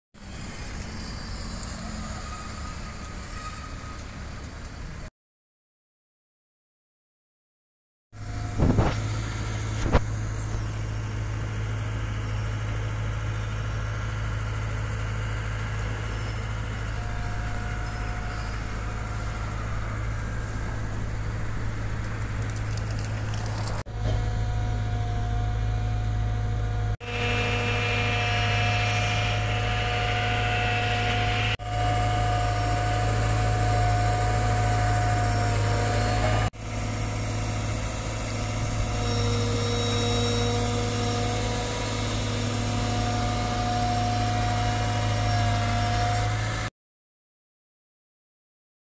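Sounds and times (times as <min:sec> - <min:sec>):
high whine: 0:08.2 - 0:14.7, 0:15.3 - 0:46.7
diesel engine running: 0:08.2 - 0:46.7.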